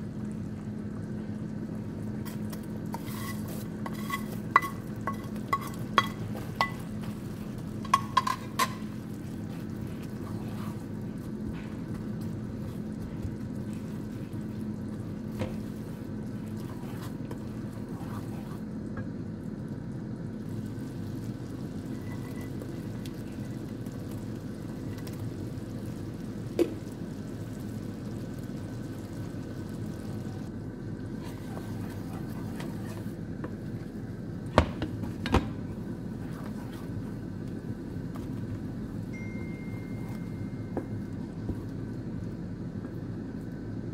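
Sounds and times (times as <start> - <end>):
sauce simmering in a pan: 0.0 - 35.1.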